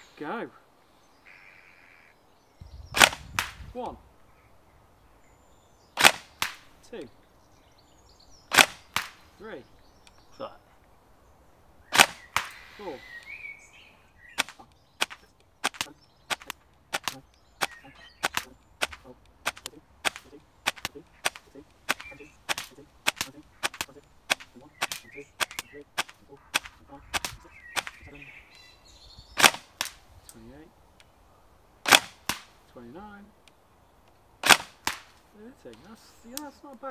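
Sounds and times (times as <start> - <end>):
airsoft rifle shots: 3.0 - 3.8, 6.0 - 6.8, 8.5 - 9.4, 11.9 - 13.0, 14.3 - 28.1, 29.4 - 30.1, 31.8 - 32.6, 34.4 - 35.2.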